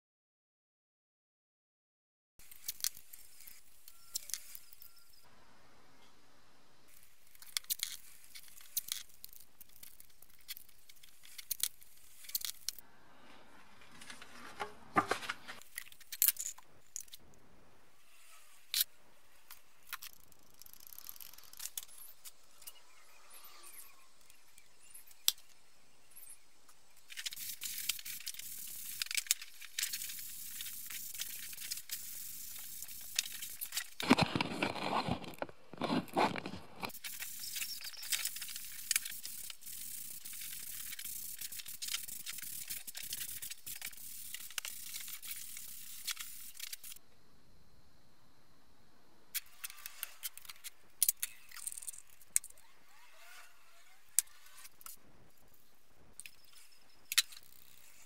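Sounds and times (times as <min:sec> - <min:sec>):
masking tape crinkling and tearing: 0:06.9 - 0:12.8, 0:27.0 - 0:47.0.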